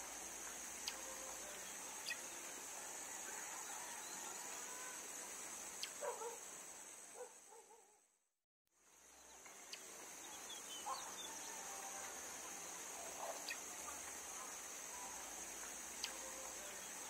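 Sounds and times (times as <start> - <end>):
high-pitched insect drone: 0.0 - 6.2.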